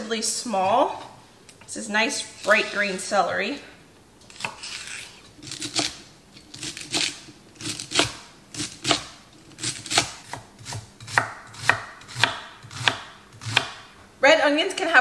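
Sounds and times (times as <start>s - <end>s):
knife chopping on wooden board: 6.6s - 13.9s.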